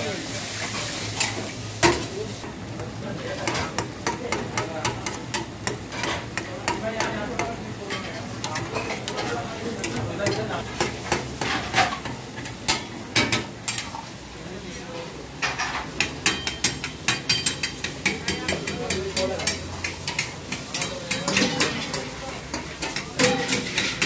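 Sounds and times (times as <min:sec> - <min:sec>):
curry sizzling in pan: 0:00.0 - 0:24.0
metal spatula clanking on wok: 0:03.4 - 0:13.8, 0:15.4 - 0:24.0.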